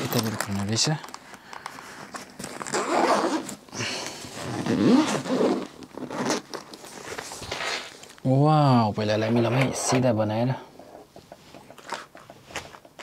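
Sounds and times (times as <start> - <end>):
zipper pulled open: 2.4 - 8.0.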